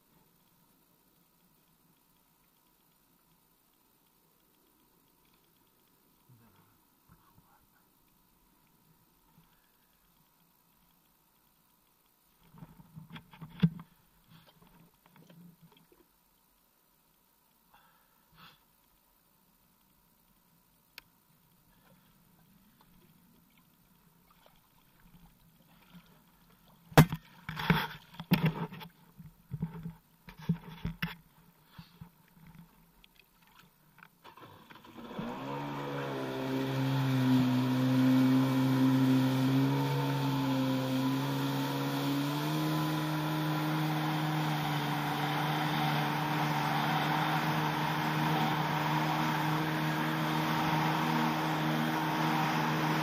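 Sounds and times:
jet ski engine revving: 0:34.3 - 0:53.0.

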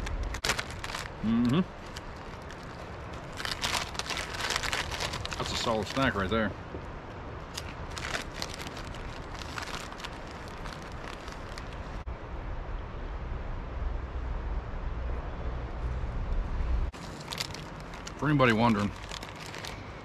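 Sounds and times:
crunchy snack chewing: 0:00.0 - 0:05.7, 0:07.6 - 0:11.8, 0:18.8 - 0:19.9.

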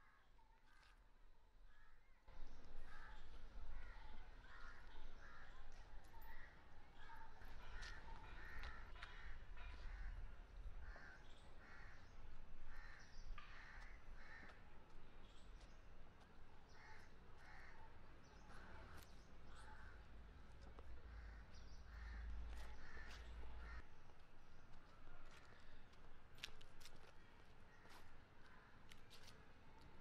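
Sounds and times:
crows cawing: 0:07.6 - 0:12.0, 0:12.7 - 0:14.6, 0:16.7 - 0:17.8, 0:21.1 - 0:23.8.

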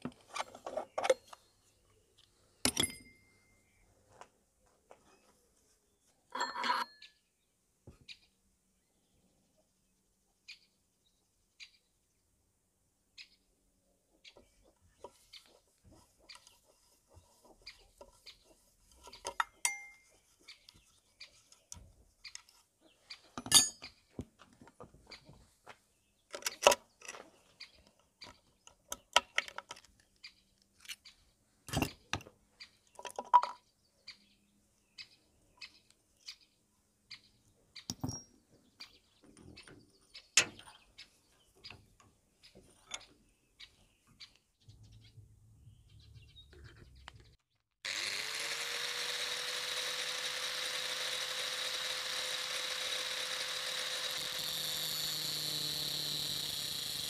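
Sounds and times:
metal tools clinking on engine parts: 0:02.7 - 0:03.3, 0:06.3 - 0:07.0, 0:19.3 - 0:20.1, 0:23.4 - 0:24.0.

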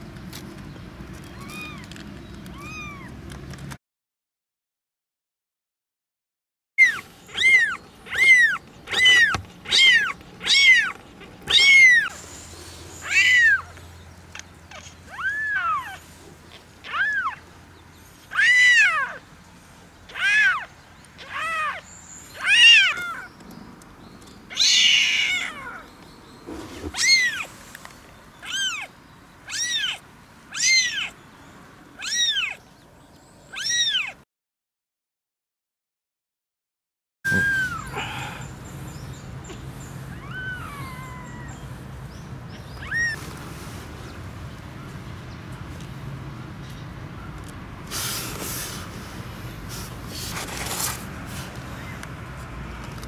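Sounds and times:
kitten mewing: 0:06.8 - 0:12.1, 0:26.6 - 0:27.5, 0:29.5 - 0:31.1, 0:37.3 - 0:38.3.

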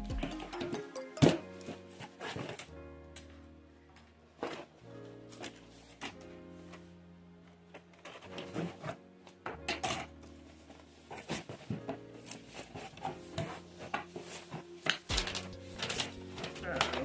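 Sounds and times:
soft background music: 0:00.0 - 0:17.0
cardboard and paper rustling: 0:04.4 - 0:06.9, 0:07.7 - 0:17.0.

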